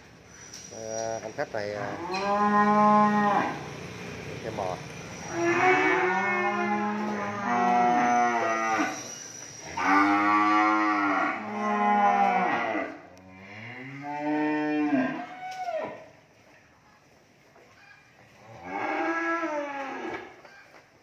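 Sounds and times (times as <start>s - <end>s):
cattle mooing: 1.7s - 3.7s, 5.2s - 9.1s, 9.8s - 16.0s, 18.4s - 20.4s.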